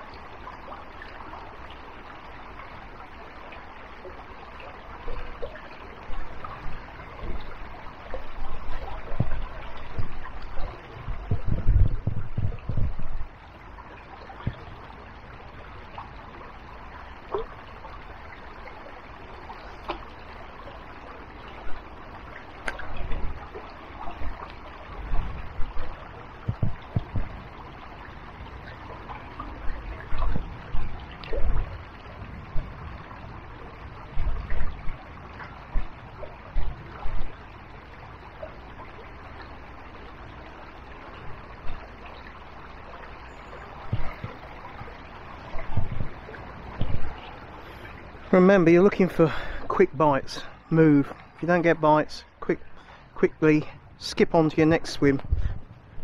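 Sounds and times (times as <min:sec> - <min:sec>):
river water trickling: 0:00.0 - 0:56.0
low thumps and rustles: 0:08.2 - 0:13.4, 0:22.6 - 0:27.6, 0:29.5 - 0:33.4, 0:34.1 - 0:37.3, 0:43.8 - 0:47.2.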